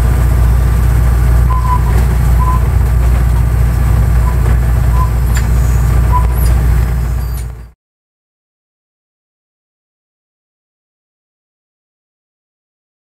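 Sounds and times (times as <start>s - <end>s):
diesel locomotive drone: 0.0s - 7.8s
rail noise: 0.0s - 7.8s
high squeaks: 1.5s - 7.8s.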